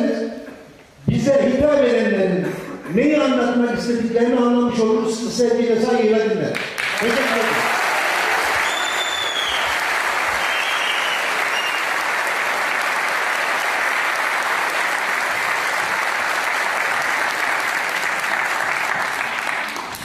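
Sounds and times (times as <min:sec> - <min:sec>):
audience applauding: 0:06.6 - 0:20.0.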